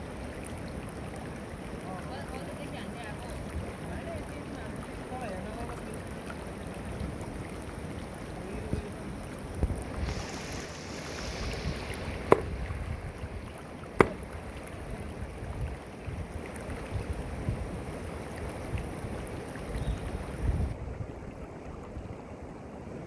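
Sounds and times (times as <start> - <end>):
flowing water rushing: 0.0 - 23.0
sledgehammer striking rock: 12.3 - 12.6, 14.0 - 14.3.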